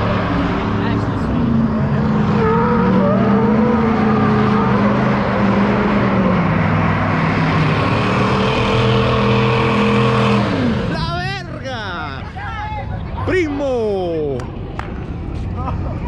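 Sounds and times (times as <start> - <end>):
truck engine revving: 0.0 - 11.8.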